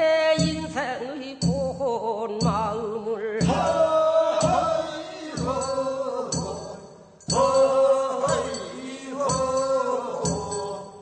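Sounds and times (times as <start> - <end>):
hand bell strikes: 5.4 - 11.0.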